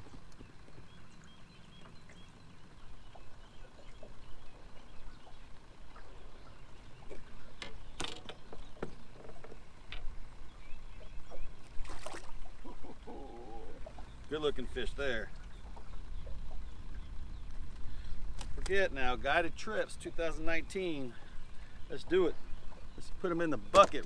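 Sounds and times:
low steady rumble: 0.0 - 24.0
fishing tackle clicks and knocks: 7.6 - 10.2, 23.7 - 24.0.

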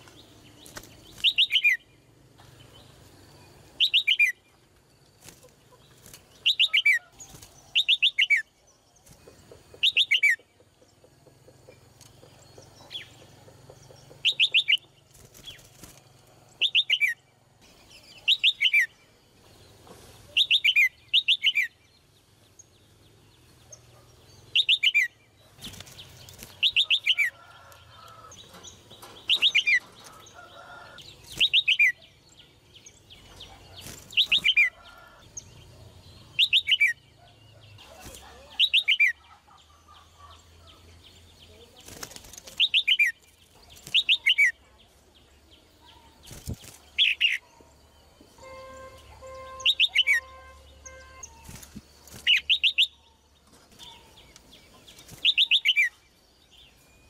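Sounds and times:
bird calling with falling trills: 0.0 - 2.0, 2.6 - 4.6, 11.7 - 15.7, 24.5 - 35.2, 48.4 - 57.0.

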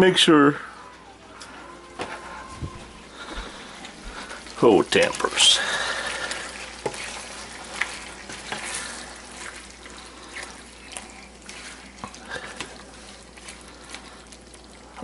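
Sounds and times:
meat sizzling in a skillet: 4.0 - 15.0
spoon stirring and knocking pan: 6.3 - 9.7.

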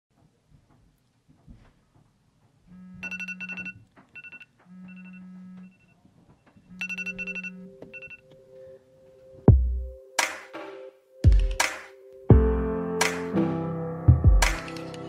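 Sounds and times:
phone buzzing against surface: 2.7 - 8.3
alarm tone beeping: 2.8 - 6.0, 6.7 - 8.4.

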